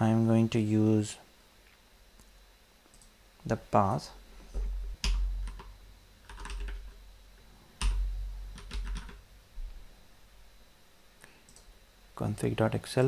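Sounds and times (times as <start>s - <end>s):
typing on computer keyboard: 5.0s - 7.0s, 7.8s - 9.2s.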